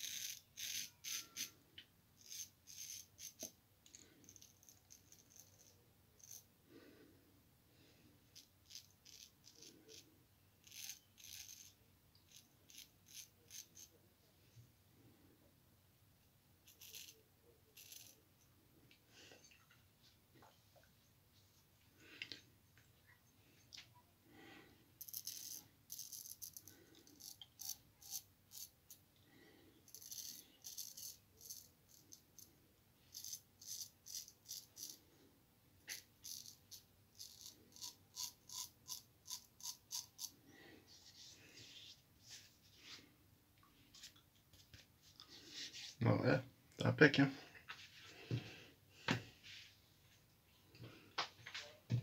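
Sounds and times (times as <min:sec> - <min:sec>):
razor scraping stubble: 0:00.0 - 0:01.5, 0:33.1 - 0:35.0, 0:35.9 - 0:40.4.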